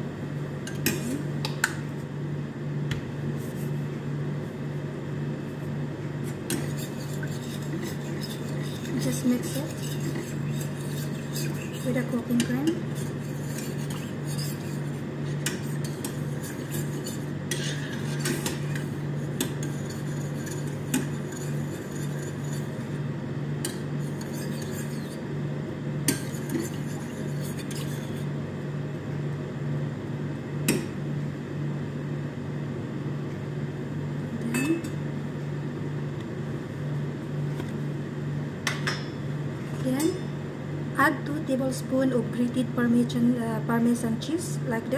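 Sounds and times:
steady low hum: 0:00.0 - 0:44.9
spoon stirring in a saucepan: 0:06.2 - 0:22.9, 0:23.6 - 0:25.2, 0:26.1 - 0:28.3.

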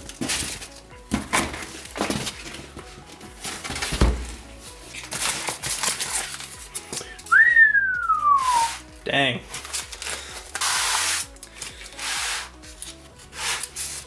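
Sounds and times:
cardboard boxes rustling and knocking: 0:00.0 - 0:07.0
background music: 0:00.0 - 0:14.0.

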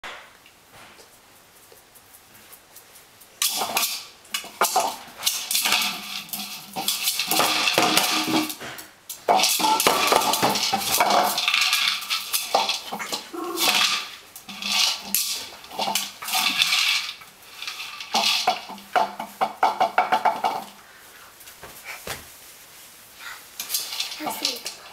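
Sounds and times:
treats rattling inside toy: 0:03.4 - 0:20.7, 0:23.6 - 0:24.9
plastic toy clattering on tile floor: 0:03.4 - 0:20.8, 0:23.6 - 0:24.9.

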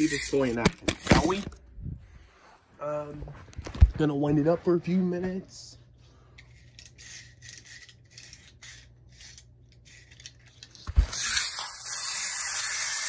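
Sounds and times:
wind-up toy key rasping: 0:00.0 - 0:00.6, 0:11.1 - 0:13.0.

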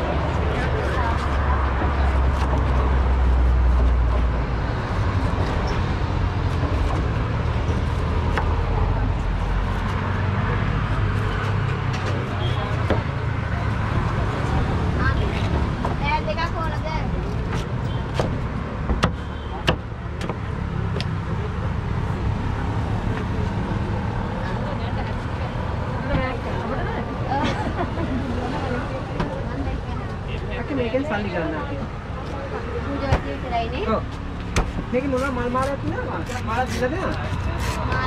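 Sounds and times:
road traffic rumble: 0:00.0 - 0:38.0
street din: 0:00.0 - 0:38.0.

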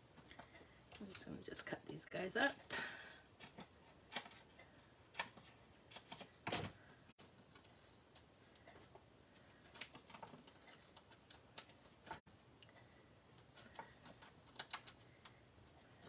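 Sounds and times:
scissors snipping foam sheet: 0:03.4 - 0:04.5, 0:05.1 - 0:06.4.

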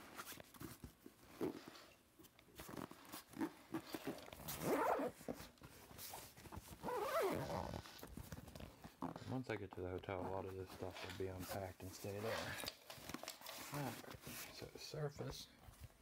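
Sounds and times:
backpack fabric rustling: 0:02.5 - 0:09.4.

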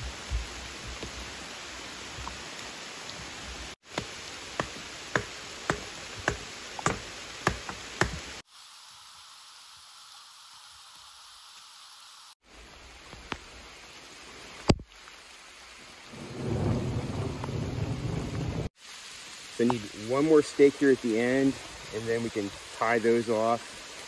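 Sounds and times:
rain hiss: 0:00.0 - 0:24.0
stake being pounded into ground: 0:03.9 - 0:08.3
sharp knock: 0:04.6 - 0:08.2.

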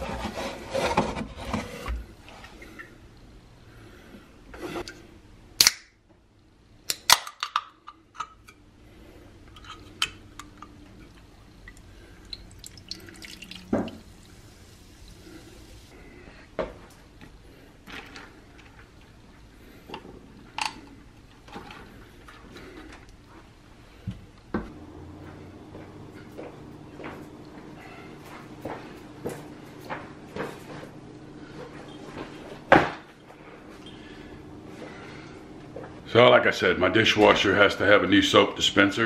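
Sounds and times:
soda pouring fizzing over ice: 0:12.4 - 0:15.8.

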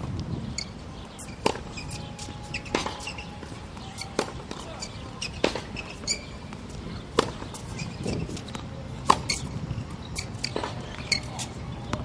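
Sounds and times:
sneakers squeaking on court: 0:00.4 - 0:12.0
tennis racket hitting ball: 0:01.4 - 0:09.5.

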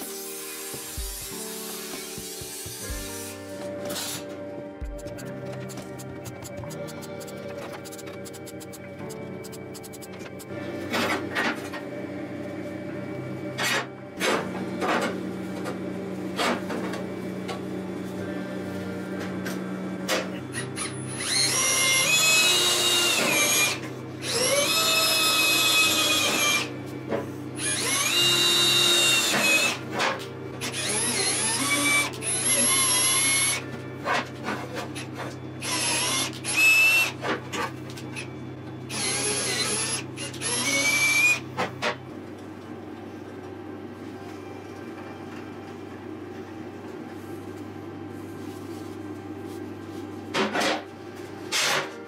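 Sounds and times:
drill whining into metal: 0:20.8 - 0:26.7, 0:27.6 - 0:29.8, 0:30.7 - 0:33.6, 0:35.6 - 0:37.2, 0:38.9 - 0:41.4.

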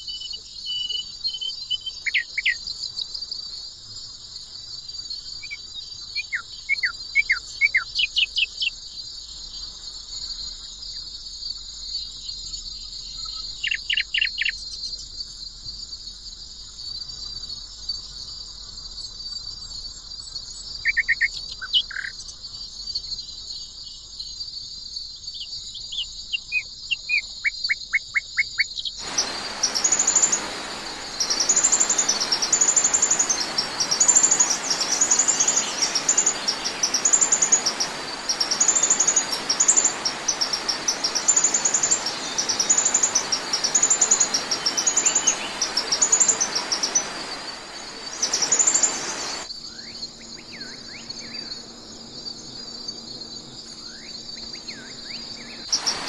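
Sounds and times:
songbirds chirping: 0:00.0 - 0:03.1, 0:05.2 - 0:09.7, 0:11.9 - 0:15.1, 0:20.3 - 0:24.0, 0:25.2 - 0:56.0
high insect trill: 0:00.0 - 0:56.0
loud even hiss: 0:29.0 - 0:49.5, 0:55.7 - 0:56.0.

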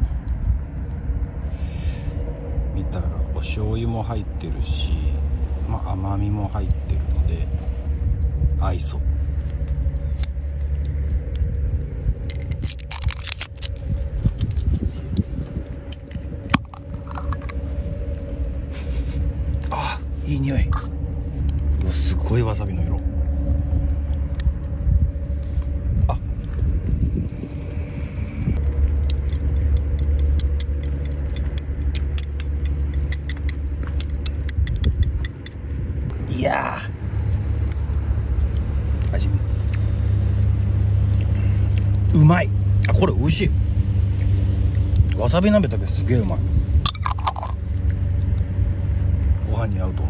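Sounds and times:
low rumble: 0:00.0 - 0:50.0
jar lid scraping and clicking: 0:46.8 - 0:47.6.

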